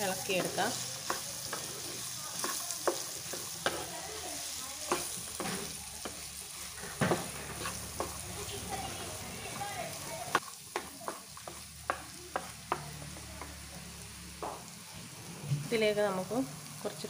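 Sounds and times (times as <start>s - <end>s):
oil sizzling in frying pan: 0.0s - 17.0s
spatula scraping and knocking pan: 0.1s - 13.6s.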